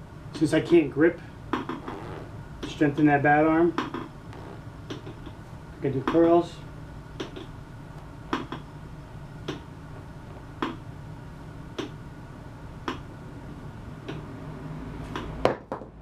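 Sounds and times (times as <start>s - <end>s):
steady low hum: 0.0s - 15.4s.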